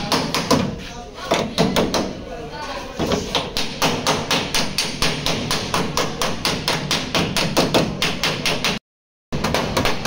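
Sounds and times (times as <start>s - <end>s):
hammer striking sheet metal: 3.0s - 10.0s.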